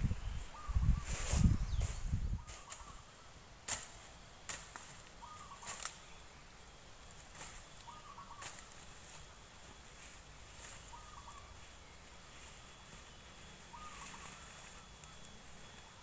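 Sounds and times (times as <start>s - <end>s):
sickle chopping brush: 3.6s - 6.0s.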